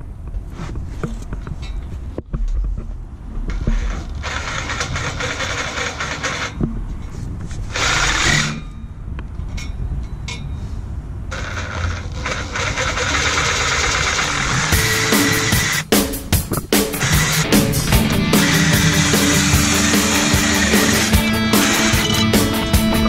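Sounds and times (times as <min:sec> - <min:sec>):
reciprocating saw cutting metal pipe: 0:03.7 - 0:06.6, 0:07.7 - 0:08.8, 0:11.3 - 0:15.9, 0:16.8 - 0:23.0.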